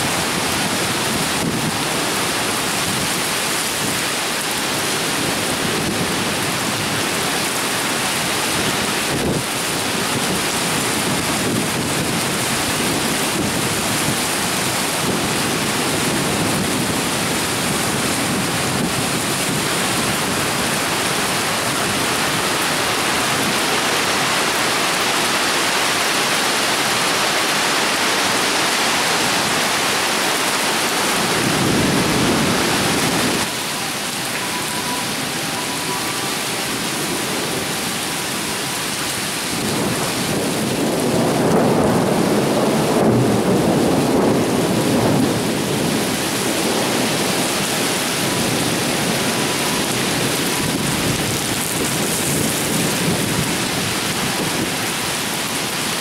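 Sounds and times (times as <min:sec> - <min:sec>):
heavy rain hissing: 0:00.0 - 0:56.0
thunder rumbling: 0:30.9 - 0:38.0, 0:39.4 - 0:54.5.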